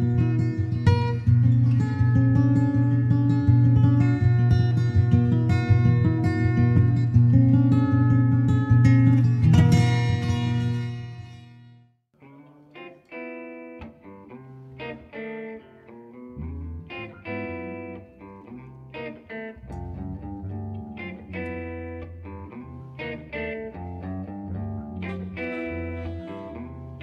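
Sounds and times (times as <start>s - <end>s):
plucked guitar notes: 0.0s - 27.0s
low bass notes: 19.6s - 22.9s.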